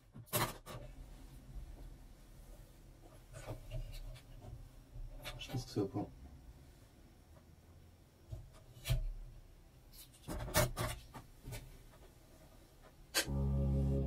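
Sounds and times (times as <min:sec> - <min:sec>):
music: 0:13.2 - 0:14.0.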